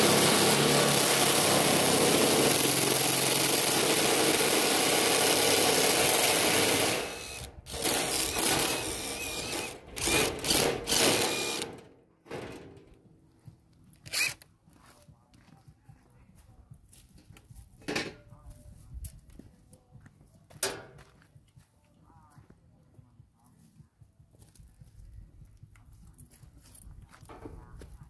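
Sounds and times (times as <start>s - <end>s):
power tool bursts: 0.0s - 12.8s, 14.1s - 14.4s.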